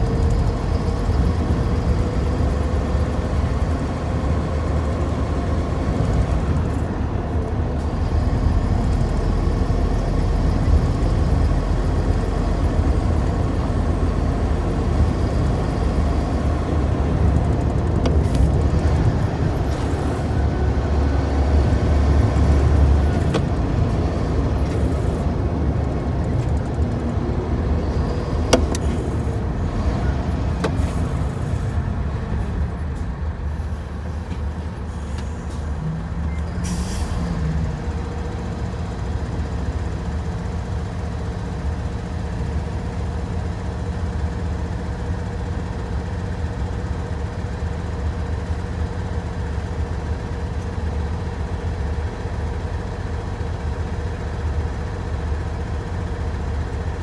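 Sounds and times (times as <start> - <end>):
diesel truck engine idling: 0.0 - 57.0
air brake hiss: 36.6 - 37.4.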